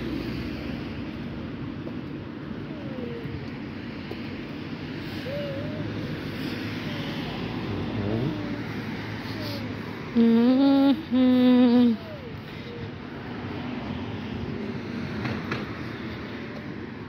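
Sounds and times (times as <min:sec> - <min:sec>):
person humming: 0:05.2 - 0:06.0, 0:06.9 - 0:12.9.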